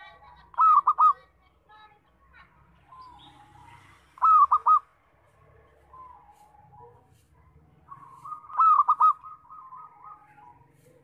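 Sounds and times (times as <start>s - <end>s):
dove cooing: 0.0s - 1.2s, 4.2s - 4.9s, 7.9s - 11.0s.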